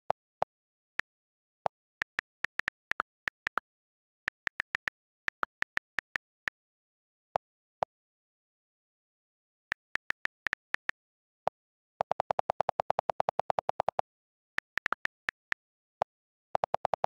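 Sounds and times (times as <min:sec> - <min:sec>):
on-screen keyboard clicks: 0:01.6 - 0:06.5, 0:09.7 - 0:11.0, 0:12.0 - 0:15.6, 0:16.6 - 0:17.0.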